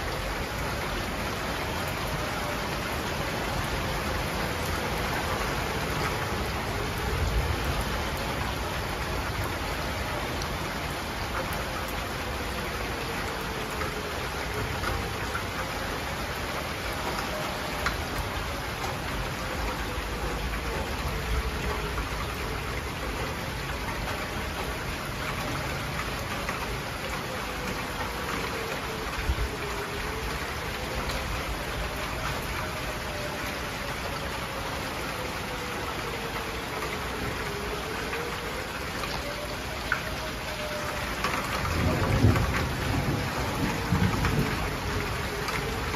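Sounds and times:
heavy rain pouring: 0:00.0 - 0:45.9
warning siren wailing: 0:00.0 - 0:45.9
thunder rumble: 0:41.6 - 0:45.9.

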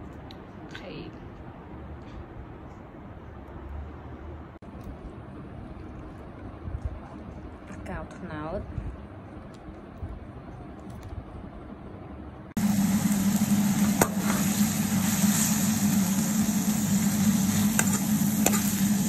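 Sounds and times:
steady low hum: 0:00.0 - 0:19.0
food sizzling in a pan: 0:12.6 - 0:19.0.

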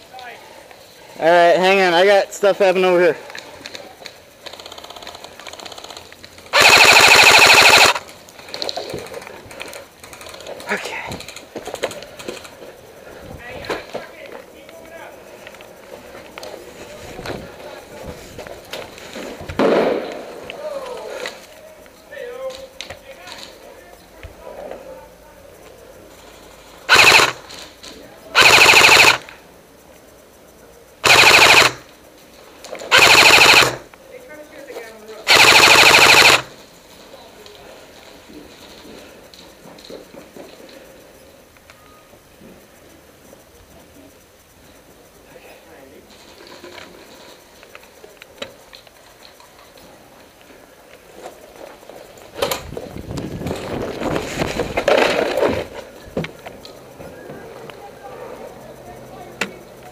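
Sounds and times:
airsoft rifle bursts: 0:04.4 - 0:08.1, 0:26.9 - 0:27.6, 0:28.3 - 0:29.4, 0:31.0 - 0:32.0, 0:32.9 - 0:33.9, 0:35.2 - 0:36.6.

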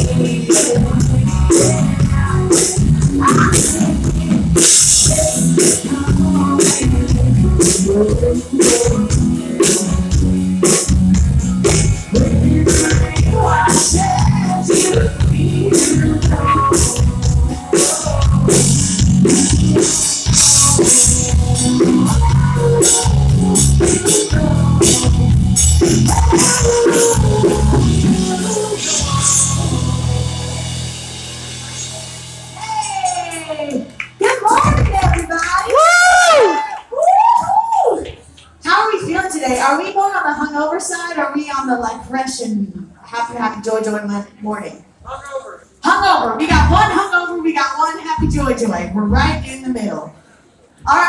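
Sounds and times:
woman singing: 0:00.0 - 0:10.2, 0:12.1 - 0:18.8, 0:21.8 - 0:30.3
bass guitar: 0:00.0 - 0:36.5, 0:46.4 - 0:47.0, 0:48.2 - 0:49.5
electric guitar: 0:00.0 - 0:36.7
drum kit beat: 0:00.0 - 0:37.4, 0:46.4 - 0:47.0.

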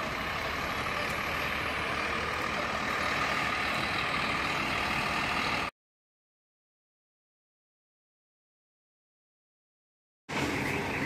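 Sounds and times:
bus diesel engine running: 0:00.0 - 0:05.7, 0:10.3 - 0:11.0.

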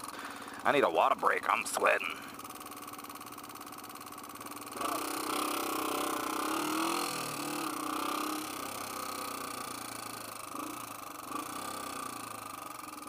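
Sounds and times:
motorcycle engine: 0:00.0 - 0:13.0
man talking: 0:00.6 - 0:02.3.

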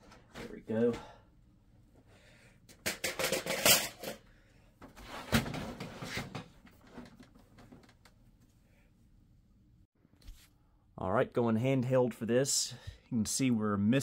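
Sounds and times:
computer case clattering and rattling: 0:02.9 - 0:04.2, 0:05.0 - 0:08.0.

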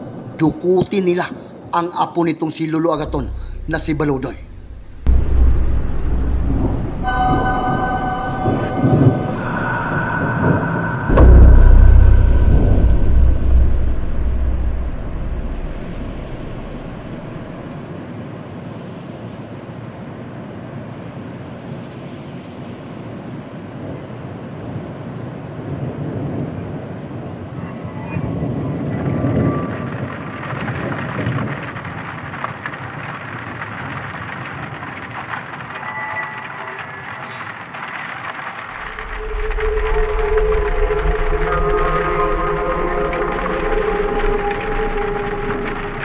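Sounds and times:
steady wind-like noise: 0:00.0 - 0:35.8, 0:36.9 - 0:46.0
deep low boom: 0:03.0 - 0:17.7, 0:38.8 - 0:46.0
low rumble: 0:03.0 - 0:18.0, 0:38.6 - 0:46.0.

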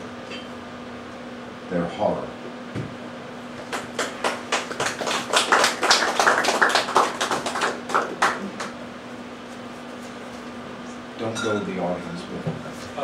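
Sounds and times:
small audience applauding: 0:03.6 - 0:08.8.

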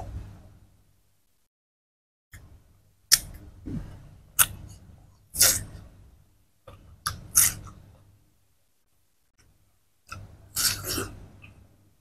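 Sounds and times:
crunching of watermelon being chewed: 0:10.1 - 0:11.6.

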